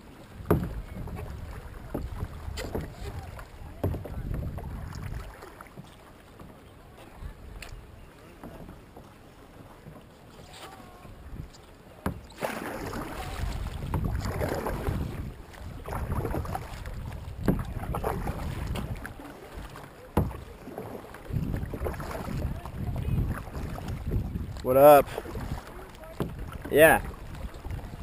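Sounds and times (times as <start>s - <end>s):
paddle splashing through water: 0.0s - 28.0s
wind on microphone: 0.4s - 5.3s, 12.8s - 19.2s, 21.2s - 28.0s.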